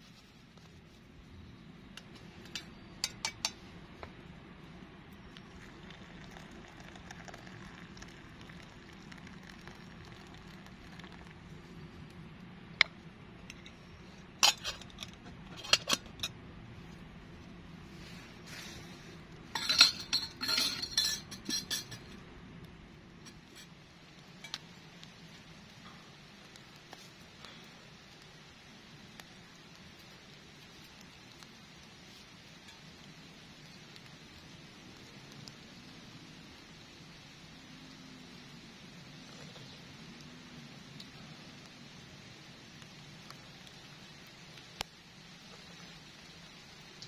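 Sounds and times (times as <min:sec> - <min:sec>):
steady rain: 0:00.0 - 0:47.0
metal cookware clattering: 0:19.6 - 0:22.2.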